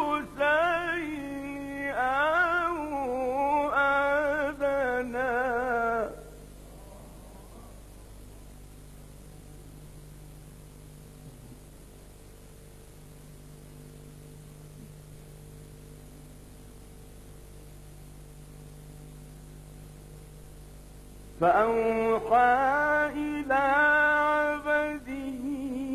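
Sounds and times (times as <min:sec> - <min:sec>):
electrical hum: 0:00.0 - 0:25.9
recording hiss: 0:00.0 - 0:25.9.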